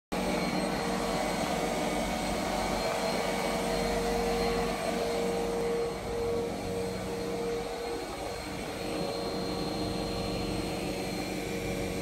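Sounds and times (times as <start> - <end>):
motor humming and whirring: 0.2 - 12.0.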